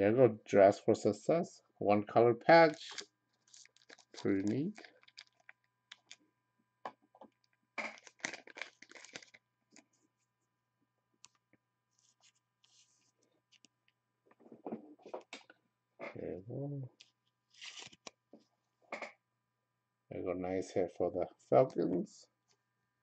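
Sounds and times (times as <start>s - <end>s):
low hum of a voice: 0.0s - 3.0s, 4.2s - 4.8s, 16.0s - 16.9s, 20.1s - 22.2s
plastic crinkling: 2.7s - 6.2s, 7.2s - 9.4s, 17.0s - 18.1s.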